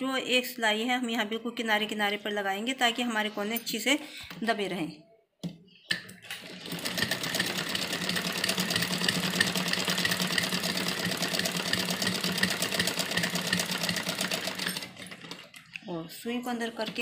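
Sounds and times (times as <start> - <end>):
sewing machine running: 6.2 - 15.7.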